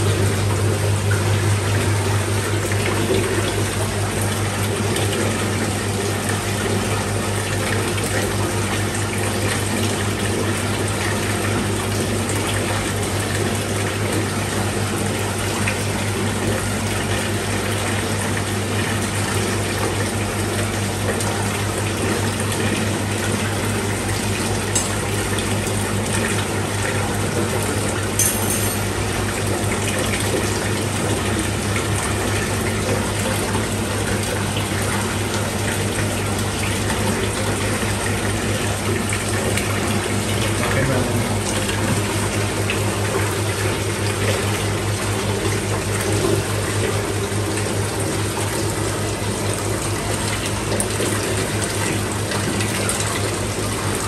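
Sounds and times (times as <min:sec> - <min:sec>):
low pump hum: 0:00.0 - 0:54.0
water running into a tank: 0:00.0 - 0:54.0.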